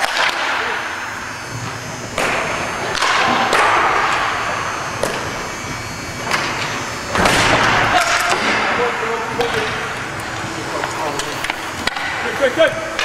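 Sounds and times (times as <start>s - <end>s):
hockey sticks clacking on floor: 0.0s - 0.6s, 9.3s - 12.2s.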